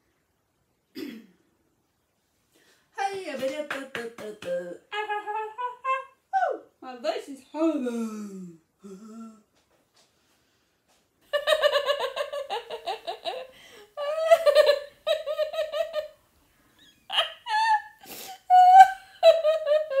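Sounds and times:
woman laughing hard: 11.4 - 16.1, 17.1 - 20.0.

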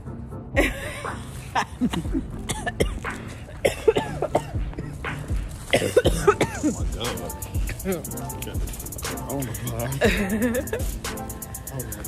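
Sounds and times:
person coughing: 1.6 - 5.0, 5.7 - 8.5.

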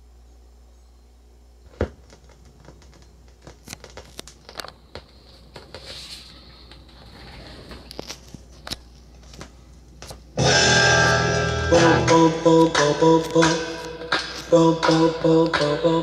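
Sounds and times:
steady low hum: 0.0 - 16.0
vinyl crackle and pops: 1.7 - 5.8, 7.6 - 10.3, 12.5 - 15.7.

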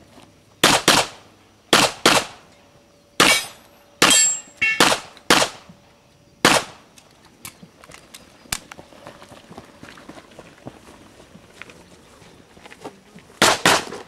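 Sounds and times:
handgun shots echoing: 3.2 - 5.6
footsteps running on grass: 8.7 - 13.4.

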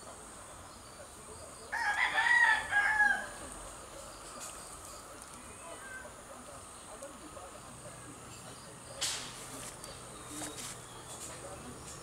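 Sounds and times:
rooster crowing: 1.7 - 3.4.

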